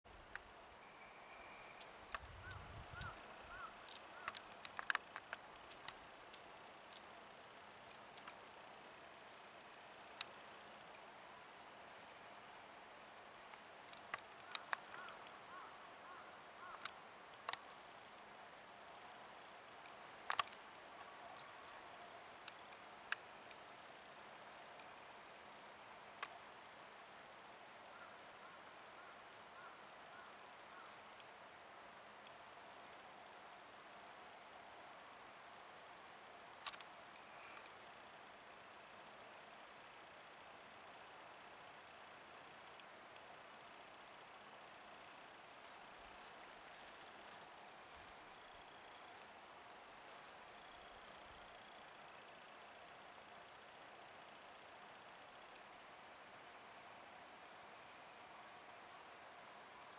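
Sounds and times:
small bird high calls: 0:00.1 - 0:04.4, 0:05.2 - 0:07.2, 0:09.8 - 0:10.6, 0:11.6 - 0:12.3, 0:13.4 - 0:18.1, 0:18.8 - 0:31.0.

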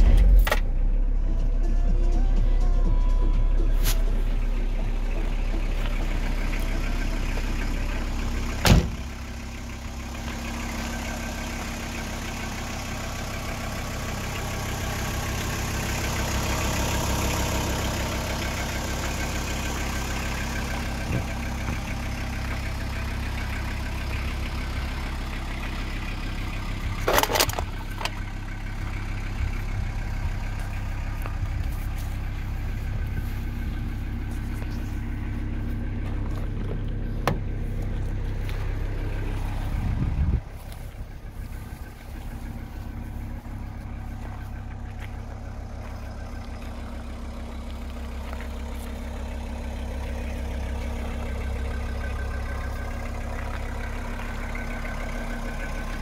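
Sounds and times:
diesel engine idling: 0:00.0 - 0:56.0
van door shutting: 0:08.6 - 0:09.1.

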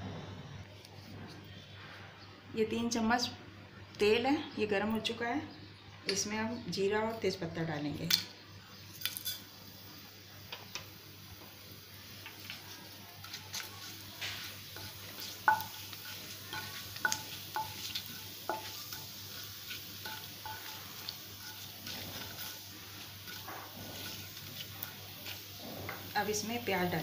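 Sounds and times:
spices sizzling in hot oil: 0:08.1 - 0:27.0
wooden spatula knocking on pan: 0:15.5 - 0:15.8.

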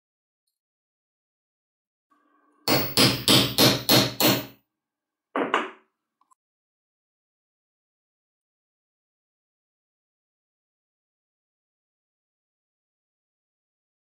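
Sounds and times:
hammer-like knocks: 0:02.7 - 0:04.5, 0:05.4 - 0:05.8.

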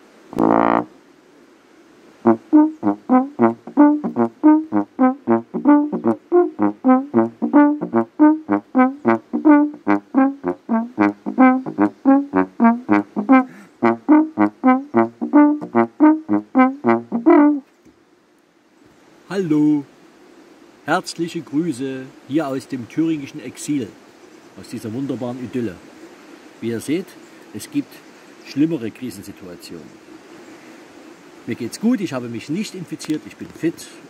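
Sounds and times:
slide trombone notes: 0:00.3 - 0:01.0, 0:02.2 - 0:17.6.

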